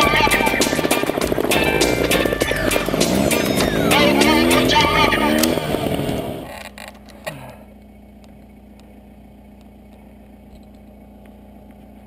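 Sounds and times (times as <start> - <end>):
background music: 0.0 - 6.4
engine hum: 0.0 - 12.0.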